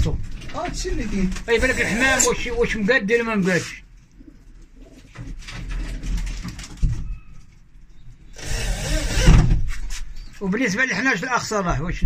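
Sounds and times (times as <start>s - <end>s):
cordless drill driving screws: 8.4s - 9.5s.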